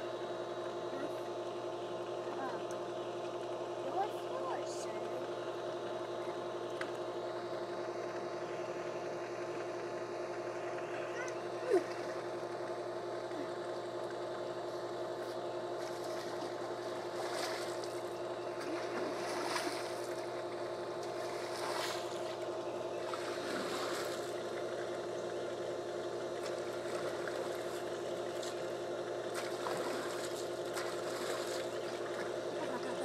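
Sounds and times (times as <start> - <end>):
steady mechanical hum: 0.0 - 33.0
water splashing in a pool: 15.8 - 22.4, 23.0 - 25.0, 26.4 - 33.0.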